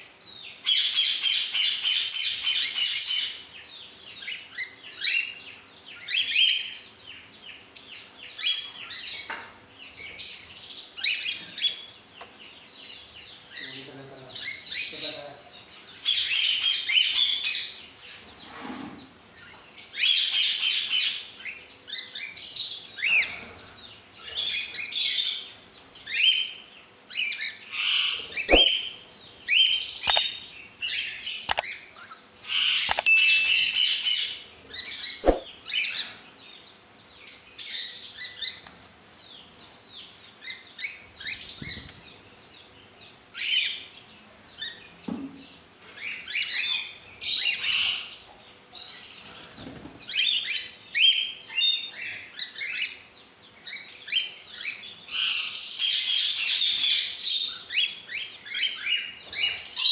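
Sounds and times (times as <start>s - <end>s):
wings flapping: 28.5s - 28.7s, 35.2s - 35.5s.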